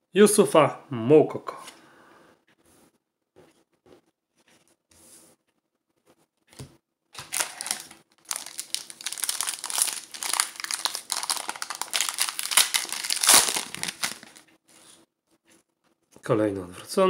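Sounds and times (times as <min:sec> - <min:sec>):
foil wrapper crinkling: 0:07.2 - 0:14.5.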